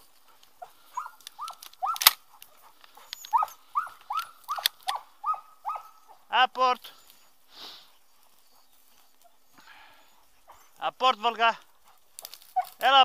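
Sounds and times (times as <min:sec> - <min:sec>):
dog whining in yelps: 0:00.6 - 0:06.3, 0:12.2 - 0:12.9.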